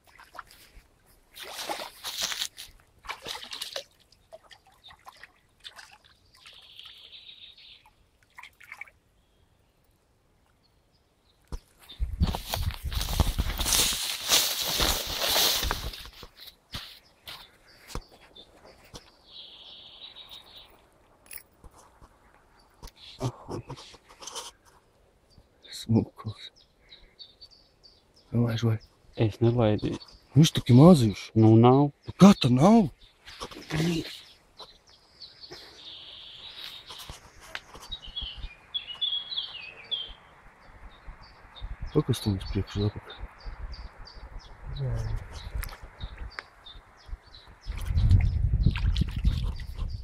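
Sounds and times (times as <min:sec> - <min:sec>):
fish splashing in shallow water: 0:01.3 - 0:07.1, 0:07.8 - 0:09.0
bird singing: 0:06.2 - 0:08.0, 0:16.9 - 0:21.4, 0:25.3 - 0:48.5.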